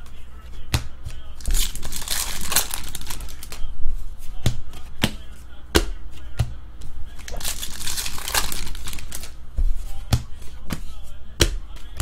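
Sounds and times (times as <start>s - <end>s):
foil wrapper crinkling: 1.4s - 3.6s, 7.3s - 9.3s.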